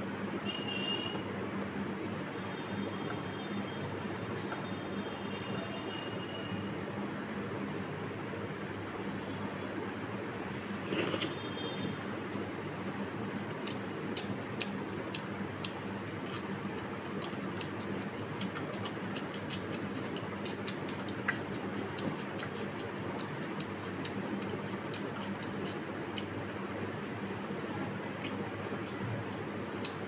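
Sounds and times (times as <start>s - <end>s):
chewing with mouth clicks: 13.6s - 26.4s, 28.2s - 30.0s.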